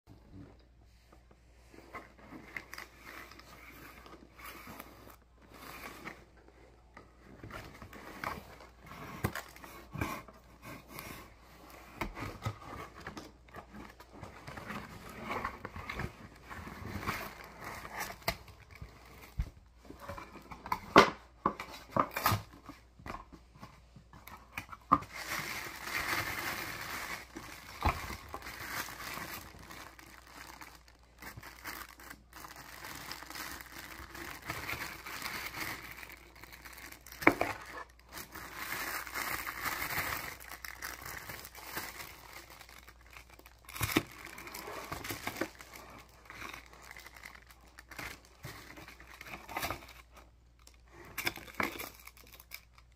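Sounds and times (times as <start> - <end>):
plastic packaging crinkling: 24.4 - 52.9.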